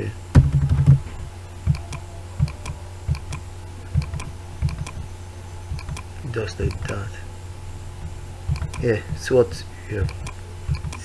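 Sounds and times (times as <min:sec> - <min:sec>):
low electrical hum: 0:00.0 - 0:11.0
mouse and keyboard clicks: 0:01.6 - 0:05.0, 0:05.7 - 0:07.0, 0:08.5 - 0:09.2, 0:10.0 - 0:11.0.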